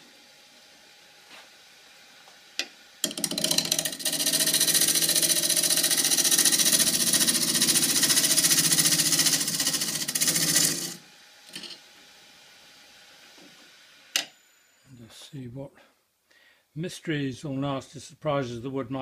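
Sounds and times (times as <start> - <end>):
wood lathe gouge cutting: 3.0 - 11.0.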